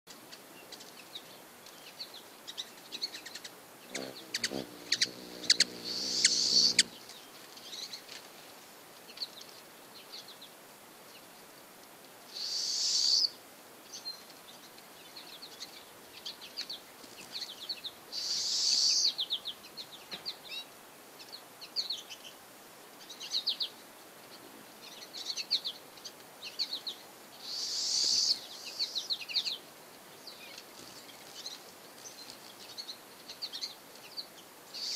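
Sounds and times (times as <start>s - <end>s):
high bird chirps: 3.9s - 7.0s
hummingbird wings whirring: 3.9s - 7.1s.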